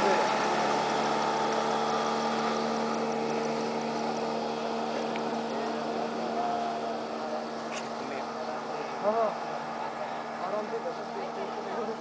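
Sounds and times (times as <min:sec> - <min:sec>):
motorboat engine running: 0:00.0 - 0:12.0.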